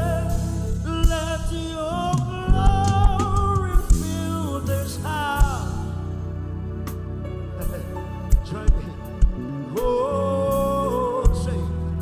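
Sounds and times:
drum hit: 0:00.0 - 0:04.5
person singing: 0:00.0 - 0:06.2, 0:08.3 - 0:12.0
bass: 0:00.0 - 0:12.0
keyboard chords: 0:00.0 - 0:12.0.

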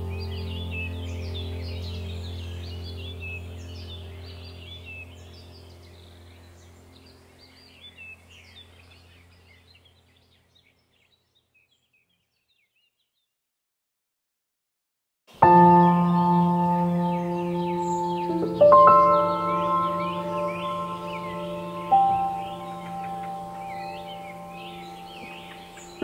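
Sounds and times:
low steady hum: 0:00.0 - 0:10.5
small birds chirping: 0:00.0 - 0:13.4, 0:15.3 - 0:26.0.

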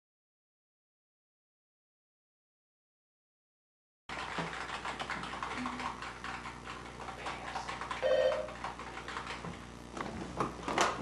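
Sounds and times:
typing on a keyboard: 0:04.1 - 0:09.6.

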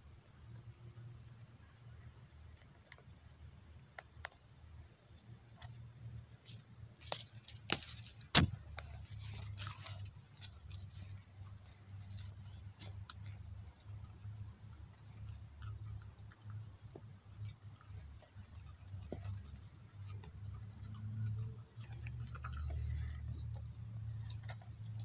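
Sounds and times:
low steady hum: 0:00.0 - 0:25.0
dog chewing lettuce: 0:07.0 - 0:25.0.

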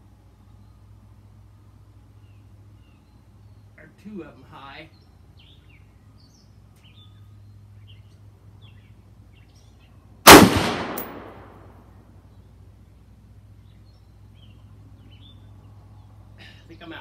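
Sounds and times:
birds chirping faintly: 0:00.0 - 0:17.0
rifle shot with echo: 0:10.3 - 0:11.8.

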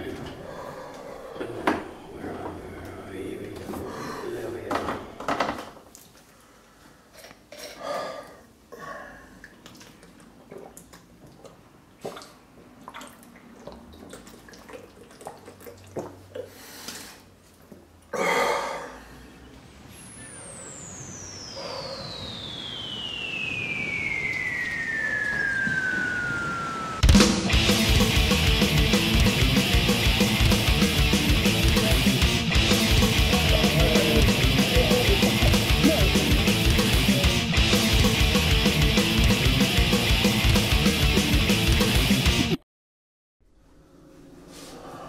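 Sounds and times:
person swallowing: 0:09.4 - 0:12.3
descending whistle: 0:19.4 - 0:30.4, 0:31.1 - 0:40.8
rushing noise: 0:19.5 - 0:42.6.

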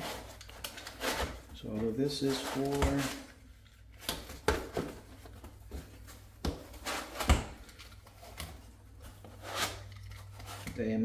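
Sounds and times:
packaging rustling: 0:00.0 - 0:04.0.

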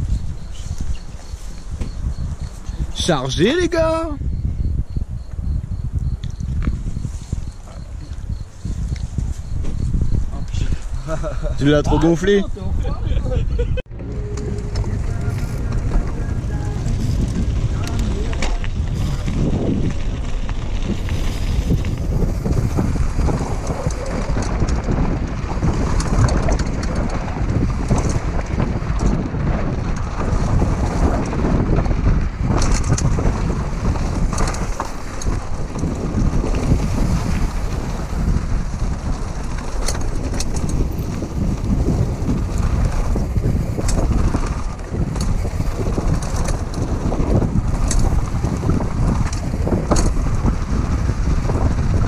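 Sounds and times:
bike clicks and rattles: 0:00.0 - 0:04.0, 0:13.3 - 0:52.0
wind buffeting microphone: 0:00.0 - 0:52.0
tyres crunching on loose dirt: 0:13.9 - 0:52.0.

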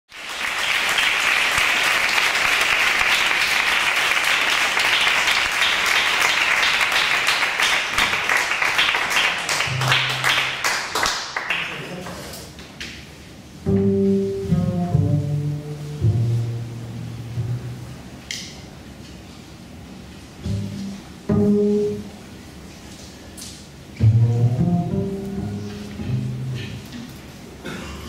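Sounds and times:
audience applause: 0:00.1 - 0:12.3
double bass low notes: 0:13.6 - 0:18.3, 0:20.3 - 0:22.5, 0:24.0 - 0:27.1.

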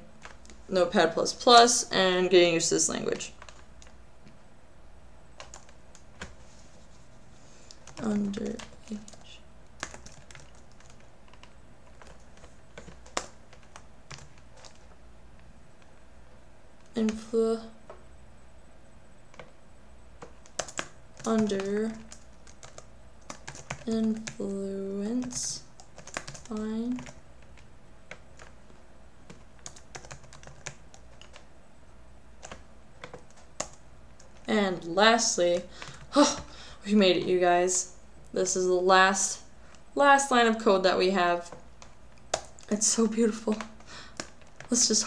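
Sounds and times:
faint low hum: 0:00.0 - 0:45.0
keyboard typing: 0:00.1 - 0:00.7, 0:02.9 - 0:04.4, 0:05.3 - 0:06.5, 0:07.7 - 0:15.9, 0:19.3 - 0:19.6, 0:20.2 - 0:31.5, 0:32.4 - 0:36.5, 0:41.4 - 0:45.0.

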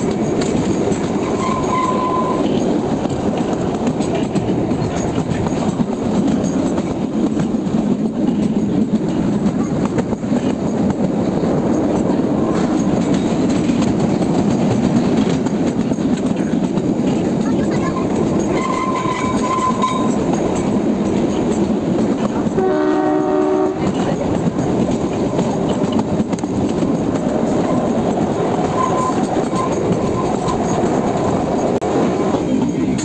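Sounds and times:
train wheels clattering on rails: 0:00.0 - 0:33.0
train horn: 0:01.3 - 0:02.5, 0:18.6 - 0:20.2, 0:22.4 - 0:24.0.

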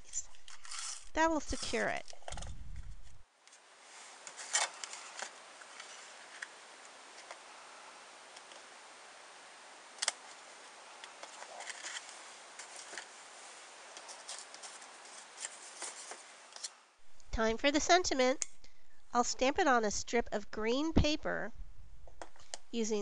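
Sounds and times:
paper rustling: 0:14.0 - 0:16.3.

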